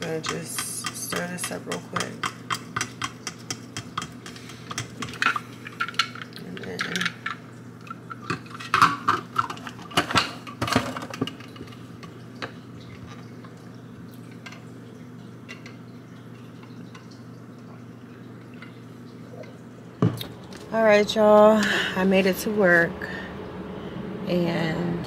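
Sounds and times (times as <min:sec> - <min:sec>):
low hum: 0:17.0 - 0:25.0.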